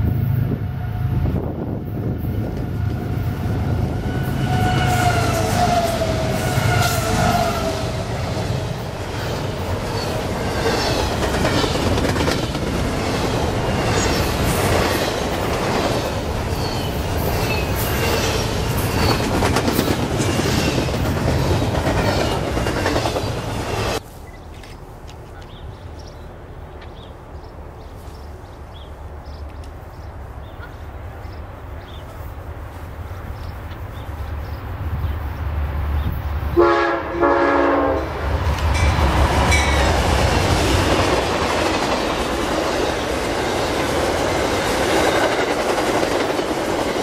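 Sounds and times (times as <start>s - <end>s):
diesel locomotives rumbling: 0.0s - 47.0s
train wheel squeal: 3.9s - 7.8s, 16.5s - 24.4s
freight cars clattering on rails: 8.7s - 24.0s.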